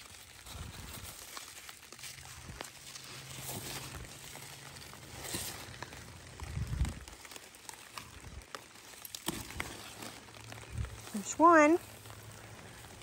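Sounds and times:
leaves rustling and crackling: 0.0s - 13.0s.

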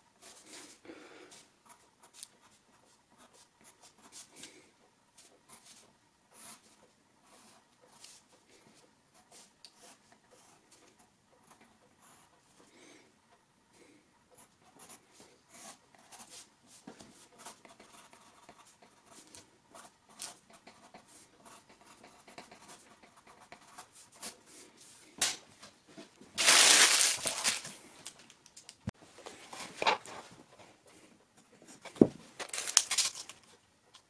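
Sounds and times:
pen scratching on paper: 17.2s - 24.4s.

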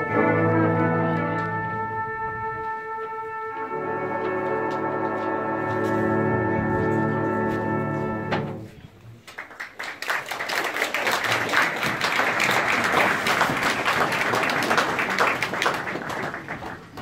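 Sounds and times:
audience applauding: 9.2s - 17.0s.

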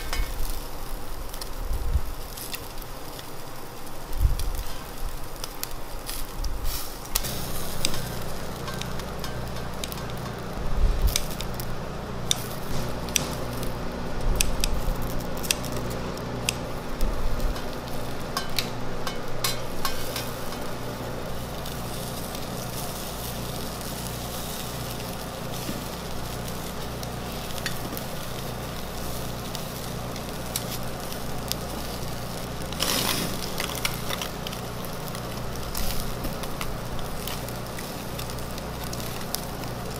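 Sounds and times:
chicken sizzling on a grill: 0.0s - 39.9s
fire flaring up: 0.0s - 39.9s
low steady hum: 0.0s - 39.9s
metal tongs clicking: 7.2s - 10.4s, 18.4s - 20.7s.

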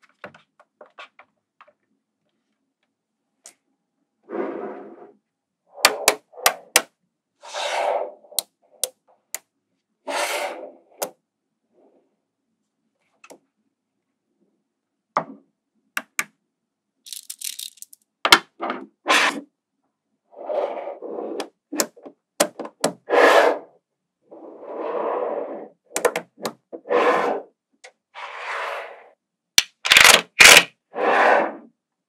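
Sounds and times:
magnetic balls clicking together: 17.1s - 18.0s.

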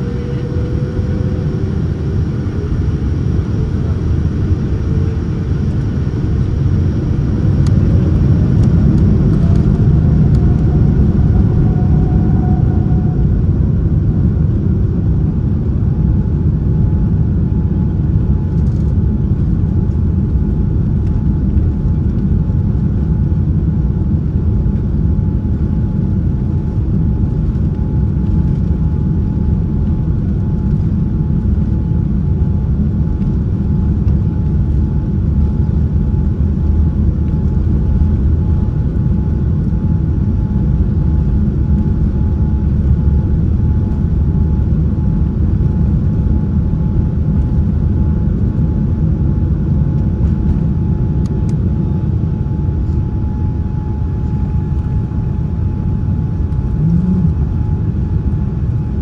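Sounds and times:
thin steady whine: 0.0s - 15.2s, 49.9s - 59.0s
airliner cabin rumble: 0.0s - 59.0s.

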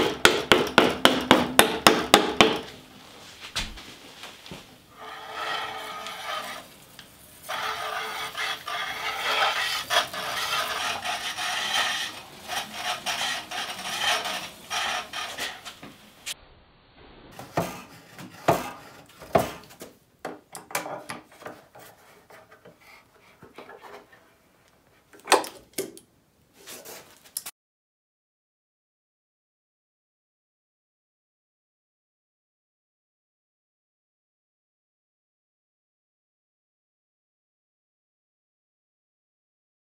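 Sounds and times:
hand-powered band saw rasping: 4.9s - 6.7s, 7.4s - 15.8s.

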